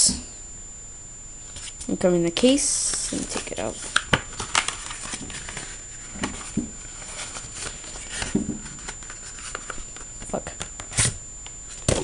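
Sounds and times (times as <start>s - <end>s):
paper rustling: 3.0s - 10.1s.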